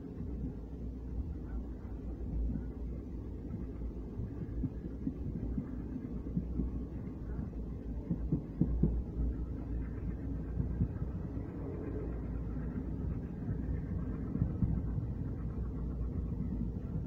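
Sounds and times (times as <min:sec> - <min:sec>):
train running rumble: 0:00.0 - 0:17.0.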